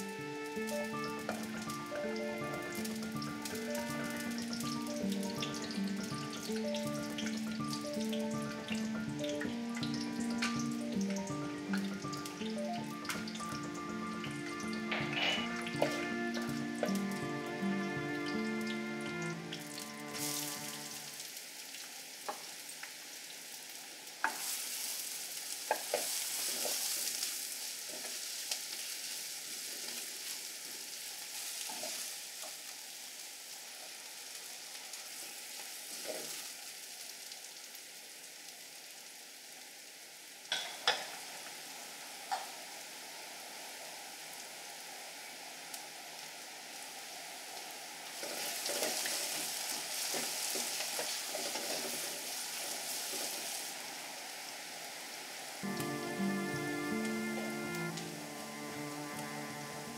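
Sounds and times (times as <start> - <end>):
onions sizzling in oil: 0.0 - 59.9.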